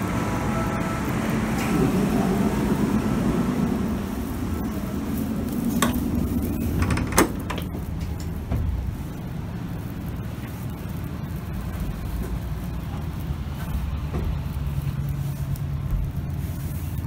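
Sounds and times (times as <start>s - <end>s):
train carriage low hum: 0.0s - 17.0s
sharp clicks and knocks: 5.7s - 9.0s.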